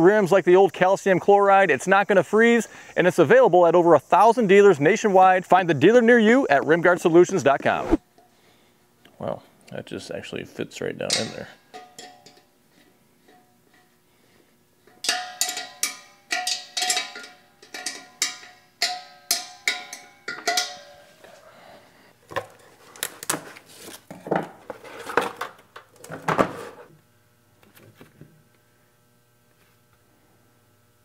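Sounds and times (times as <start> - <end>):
steel tank ringing: 11.1 - 12.4, 14.9 - 21.1
metal wrench clinking on bolts: 11.1 - 12.5, 14.9 - 21.0.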